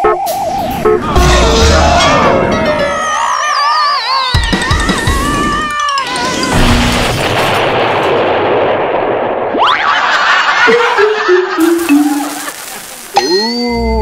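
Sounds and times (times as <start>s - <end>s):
rushing rumbling explosion: 6.5s - 9.6s.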